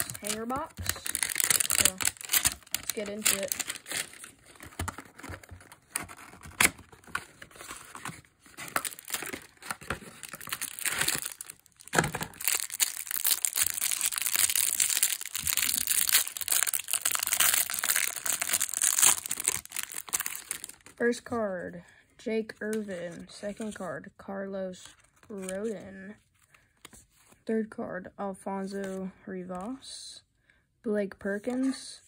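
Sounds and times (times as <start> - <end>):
plastic wrapper crinkling: 0.0 - 21.0.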